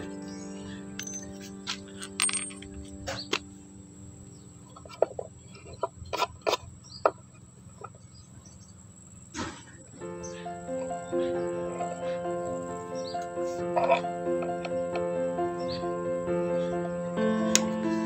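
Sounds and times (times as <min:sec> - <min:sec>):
background music: 0:00.0 - 0:05.0, 0:10.0 - 0:18.0.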